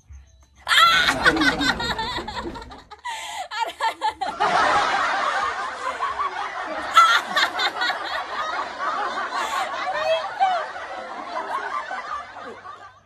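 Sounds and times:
woman laughing and giggling: 0.7s - 8.5s, 9.1s - 12.7s.

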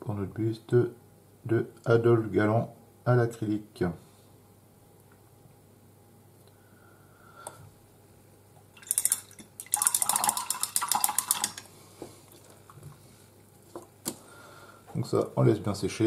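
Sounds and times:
brush clicking against pot: 8.8s - 11.7s.

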